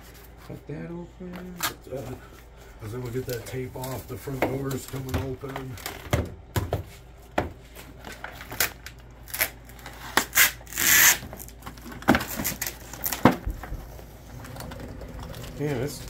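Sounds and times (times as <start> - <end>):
plastic film being peeled: 7.9 - 16.0.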